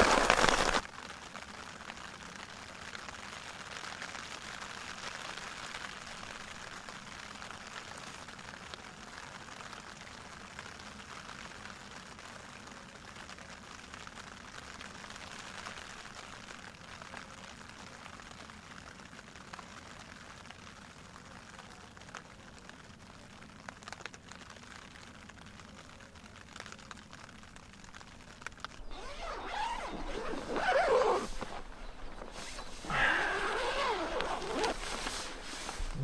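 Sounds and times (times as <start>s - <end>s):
rain pattering on tent fabric: 0.0s - 36.0s
fabric rustling and scraping: 28.8s - 36.0s.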